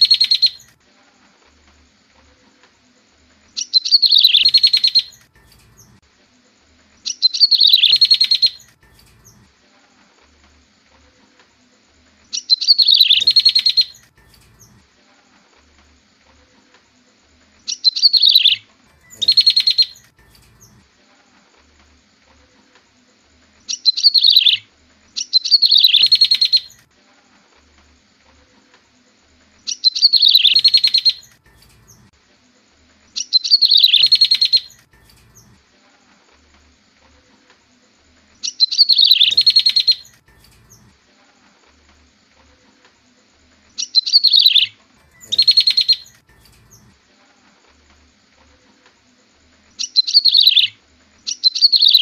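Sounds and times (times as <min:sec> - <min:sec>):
bird call with falling note and trill: 0:07.1 - 0:09.5, 0:12.4 - 0:14.8, 0:17.7 - 0:20.8, 0:25.2 - 0:26.8, 0:29.8 - 0:32.1, 0:33.2 - 0:35.6, 0:38.5 - 0:40.9, 0:43.8 - 0:46.9.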